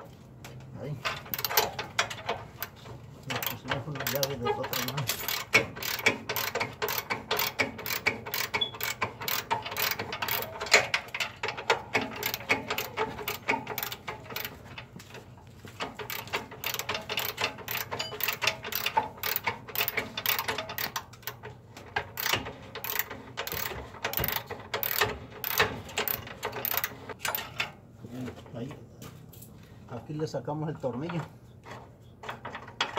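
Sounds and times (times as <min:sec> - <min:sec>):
ratchet wrench clicking: 0:01.2 - 0:02.8, 0:03.4 - 0:14.5, 0:16.0 - 0:21.4, 0:22.2 - 0:27.4.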